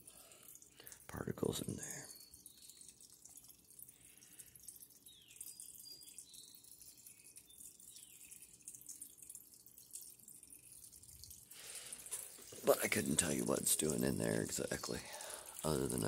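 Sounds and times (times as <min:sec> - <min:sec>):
fine steady crackle: 0:00.0 - 0:16.0
water trickling and dripping: 0:00.0 - 0:16.0.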